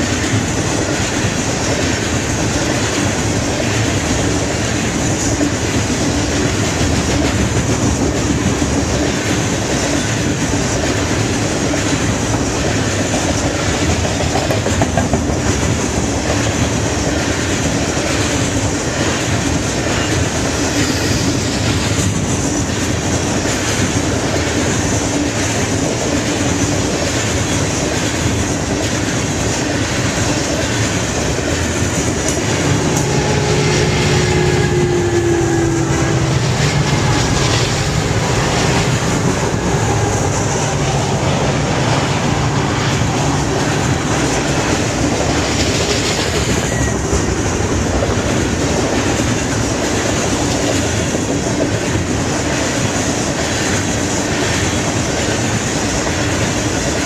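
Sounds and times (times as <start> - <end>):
diesel locomotive engine drone: 0.0 - 57.0
wheels clacking over rail joints: 0.0 - 57.0
freight cars rumbling past: 30.6 - 49.6.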